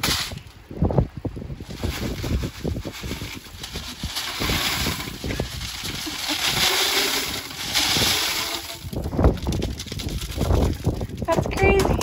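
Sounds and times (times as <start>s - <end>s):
hail rattling out of downspout: 1.8s - 11.3s.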